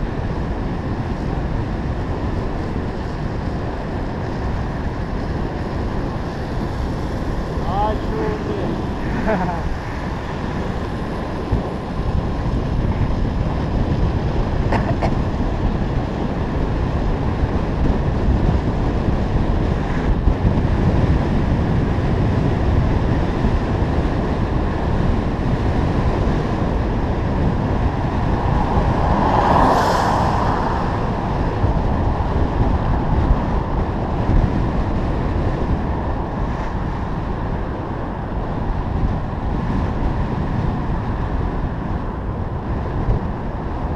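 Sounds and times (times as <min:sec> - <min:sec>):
wind buffeting microphone: 0:00.0 - 0:43.9.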